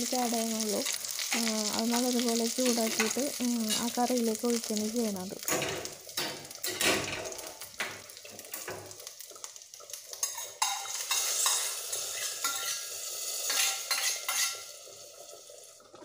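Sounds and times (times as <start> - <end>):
loud sizzling hiss: 0.0 - 15.8
spices sizzling in hot oil: 0.0 - 16.0
tongs clinking on pan: 5.4 - 8.9, 10.1 - 14.7.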